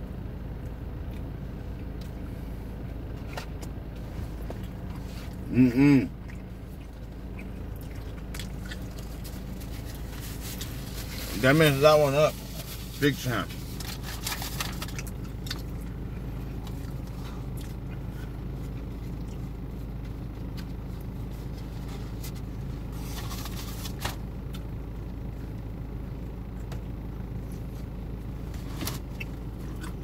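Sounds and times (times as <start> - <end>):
car engine idling: 0.0 - 30.0
rustles: 8.2 - 15.8, 16.5 - 24.2.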